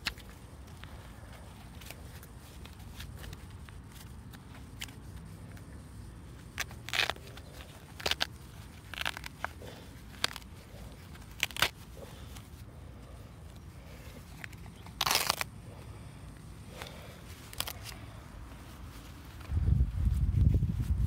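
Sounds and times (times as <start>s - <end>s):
fabric tearing by hand: 6.5s - 12.3s, 14.9s - 15.5s.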